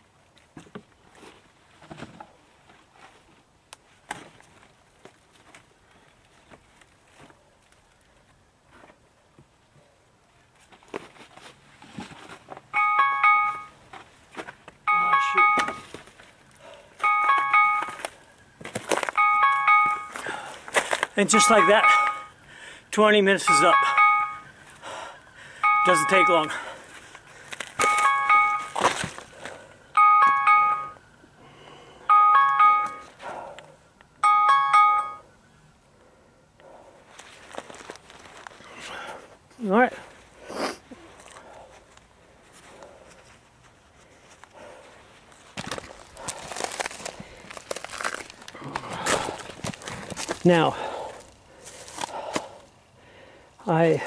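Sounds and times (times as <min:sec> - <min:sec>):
rustling and knocks of wood: 0:00.4 - 0:03.4
phone alarm chiming tune: 0:12.7 - 0:13.8, 0:14.9 - 0:15.9, 0:17.0 - 0:18.1, 0:19.2 - 0:20.2, 0:21.2 - 0:22.4, 0:23.4 - 0:24.6, 0:25.6 - 0:26.7, 0:27.8 - 0:28.8, 0:29.9 - 0:31.1, 0:32.0 - 0:33.2, 0:34.2 - 0:35.3.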